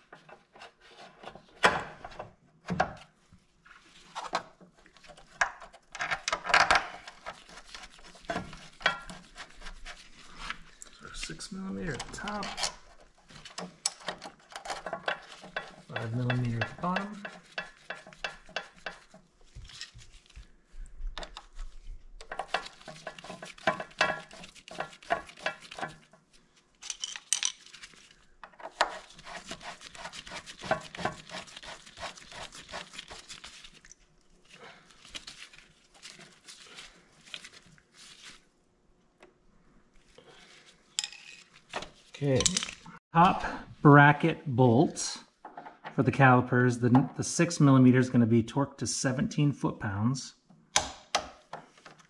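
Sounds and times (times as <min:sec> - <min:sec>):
metal tools clinking: 0:26.8 - 0:27.8, 0:41.0 - 0:41.5, 0:42.2 - 0:42.8.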